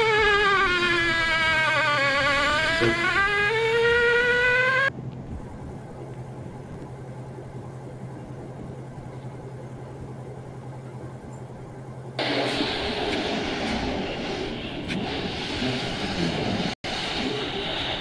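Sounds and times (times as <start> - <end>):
low steady hum: 2.8 - 14.4.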